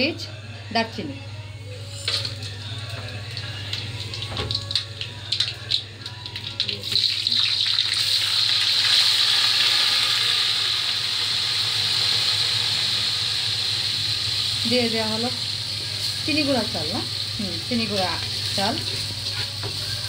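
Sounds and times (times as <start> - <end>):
spices crackling in hot oil: 2.0 - 20.0
loud sizzling hiss: 7.9 - 20.0.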